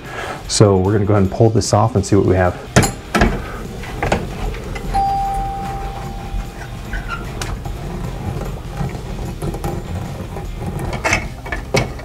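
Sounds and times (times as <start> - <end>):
door chime tone ringing: 4.8 - 7.0.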